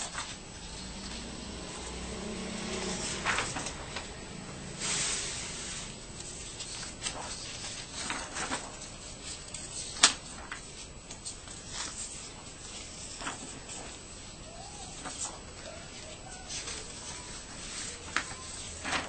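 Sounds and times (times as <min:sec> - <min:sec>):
paper rustling: 0:00.0 - 0:19.0
paper snaps and flicks: 0:06.2 - 0:12.1, 0:16.1 - 0:19.0.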